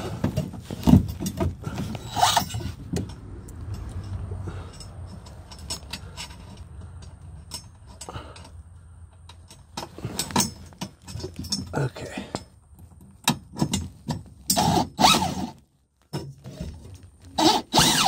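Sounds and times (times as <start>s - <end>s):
metal scrape: 0.0s - 8.1s
metal clinks and knocks: 0.1s - 14.8s.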